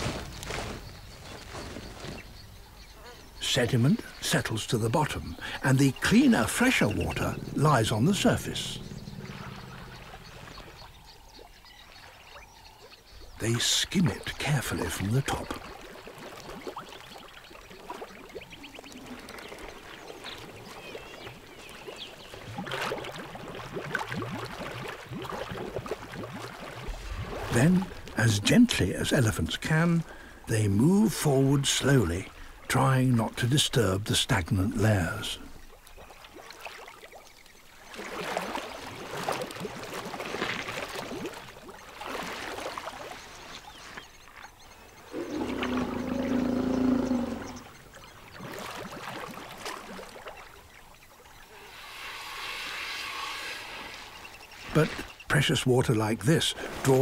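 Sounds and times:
elephants slurping water: 5.1 - 12.4, 14.6 - 29.4, 37.8 - 55.6.

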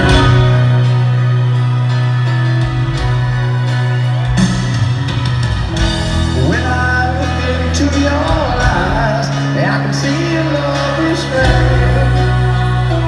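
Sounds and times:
piano and keyboard notes: 0.0 - 13.0
person singing: 6.3 - 13.0.

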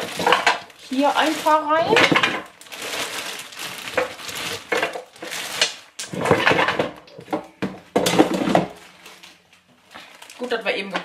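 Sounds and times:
fries rattling into fryer basket: 0.0 - 6.9.

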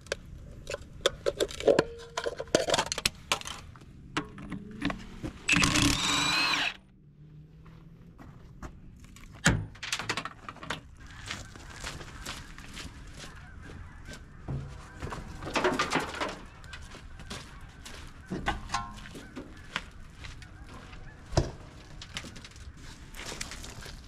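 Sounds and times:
scrap metal knocks and clanks: 14.4 - 16.8, 18.3 - 19.5.

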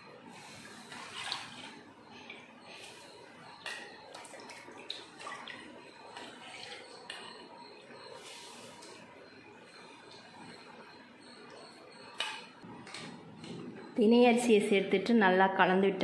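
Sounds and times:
boiling water sloshing: 0.0 - 10.9.

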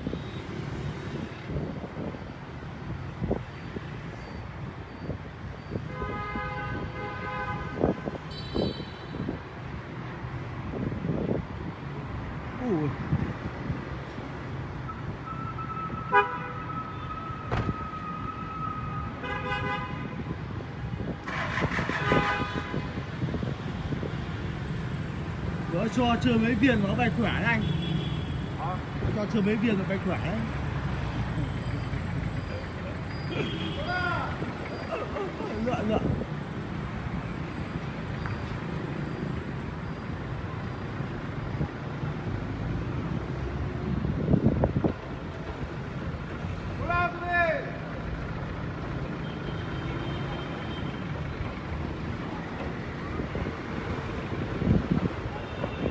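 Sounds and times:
traffic hum: 0.0 - 55.9
vehicle horns honking: 5.8 - 9.4, 15.6 - 17.1, 19.2 - 20.3, 21.3 - 23.0, 33.2 - 34.0.

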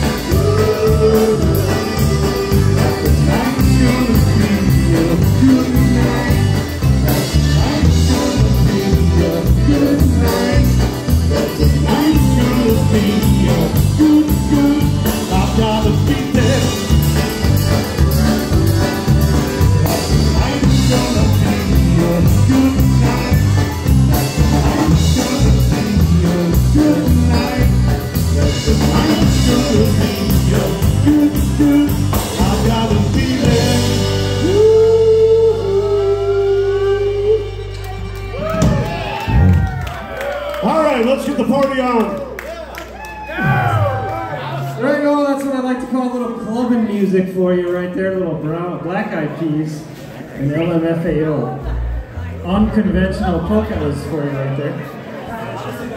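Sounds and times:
oom-pah drum beat: 0.0 - 35.3
horns: 0.0 - 36.0
person singing: 0.0 - 38.8
accordion: 0.0 - 39.2
bass guitar: 0.0 - 45.0, 51.0 - 54.4.

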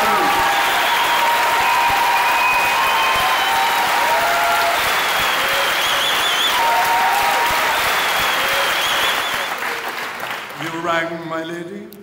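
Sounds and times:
large audience clapping: 0.0 - 11.6
high calls or whistles: 5.2 - 6.6, 7.8 - 9.6.

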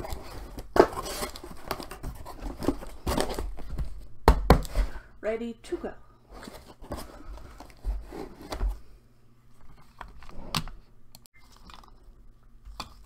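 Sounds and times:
cardboard and paper rustling: 0.0 - 4.0, 6.3 - 8.9.

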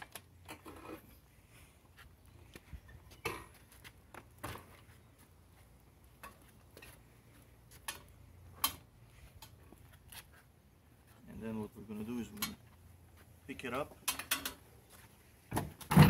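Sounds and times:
light metal clicks and knocks: 7.8 - 9.6, 12.3 - 12.8, 13.9 - 14.7.

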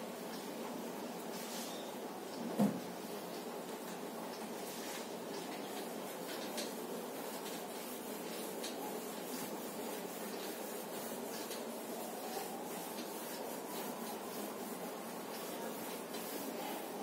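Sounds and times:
steady background hiss: 0.0 - 17.0
cloth rubbing on whiteboard: 6.9 - 17.0.

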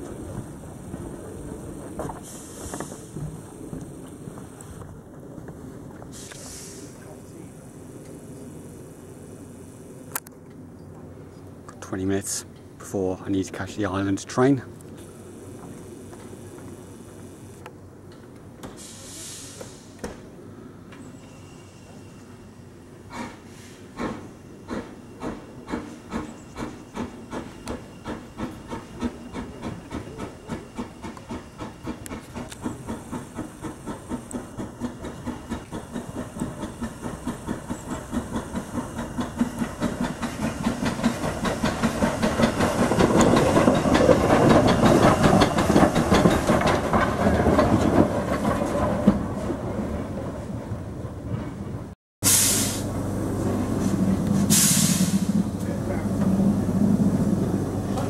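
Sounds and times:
steam hissing: 0.0 - 4.8, 6.1 - 10.0, 18.7 - 20.0, 23.1 - 47.0, 52.2 - 58.0
steam locomotive exhaust chuffing: 0.0 - 5.0, 23.0 - 49.4, 52.2 - 58.0.

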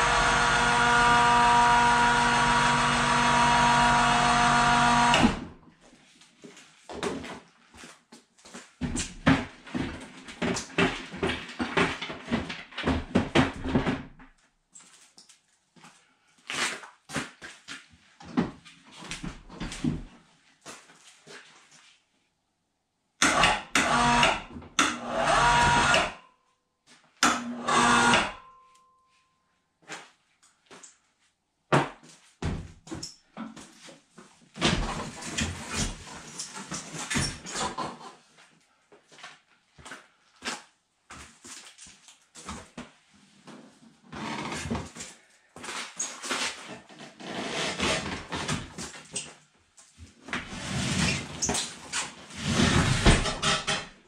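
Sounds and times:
electric winch motor hum and whine: 0.0 - 5.5, 23.3 - 26.2, 27.4 - 28.4.

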